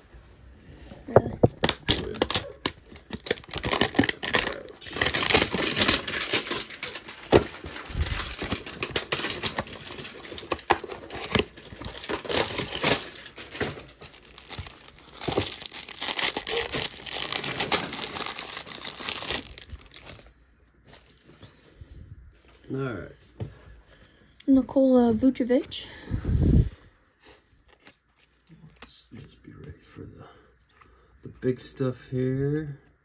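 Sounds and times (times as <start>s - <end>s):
cardboard box tearing and crinkling: 1.5s - 20.2s.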